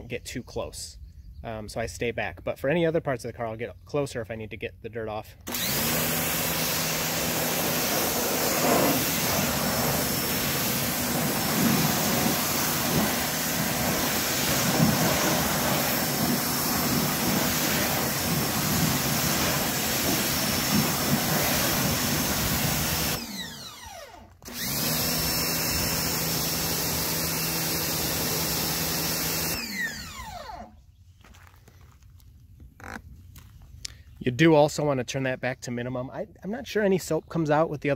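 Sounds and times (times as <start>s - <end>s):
pressure washer motor humming: 5.5s - 30.7s
water jet hissing: 5.7s - 23.2s.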